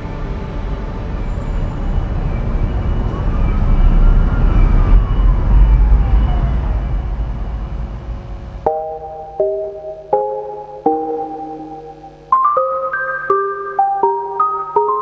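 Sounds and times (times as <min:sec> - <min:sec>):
low rumbling swell: 0:00.0 - 0:08.6
bell-like chime notes: 0:08.7 - 0:15.0.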